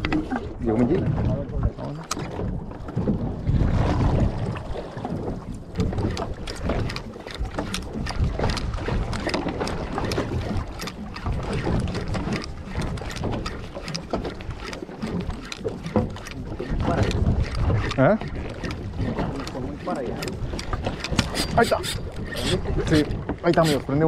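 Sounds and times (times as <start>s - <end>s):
water around boat: 0.0s - 24.0s
wind buffeting microphone: 0.0s - 24.0s
rapid light clicks: 5.8s - 23.8s.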